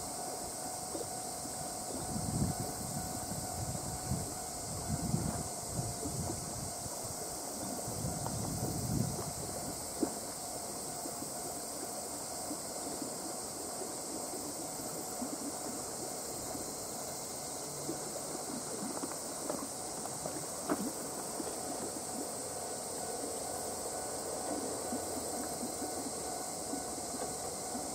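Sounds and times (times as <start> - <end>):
high-pitched hiss: 0.0 - 27.9
diesel railcar running: 22.1 - 27.9.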